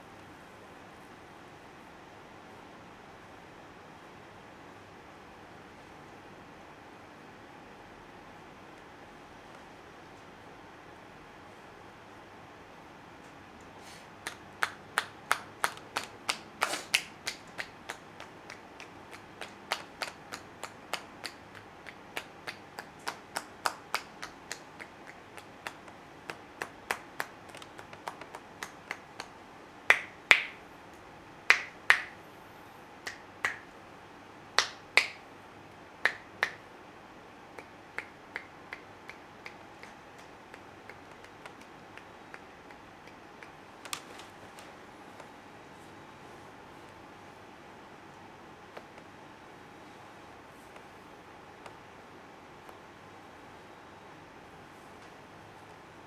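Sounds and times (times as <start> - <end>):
hands tapping on head: 14.2 - 29.3.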